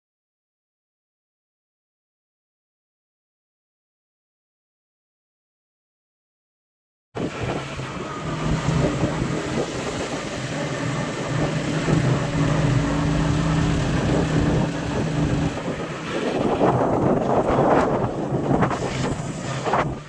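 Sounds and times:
wind rushing over microphone: 7.2s - 20.0s
motorcycle engine running: 7.4s - 19.0s.

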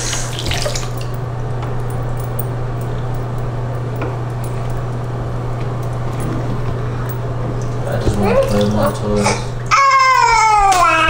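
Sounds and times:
tap water running into tub: 0.0s - 1.9s, 4.3s - 11.0s
low hum: 0.0s - 11.0s.

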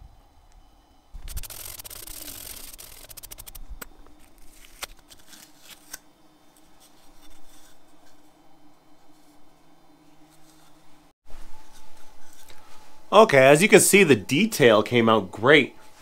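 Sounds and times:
tape peeling off wood: 1.2s - 3.7s.

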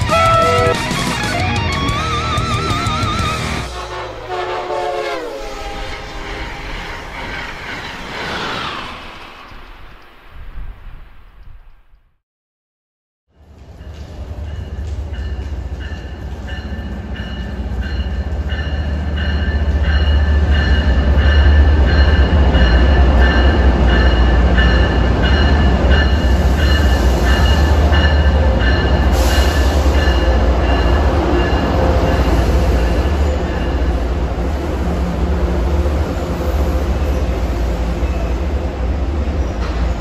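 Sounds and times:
locomotive bell ringing: 0.0s - 1.0s, 13.8s - 34.0s
diesel locomotive engine drone: 0.0s - 10.2s, 13.3s - 40.0s.

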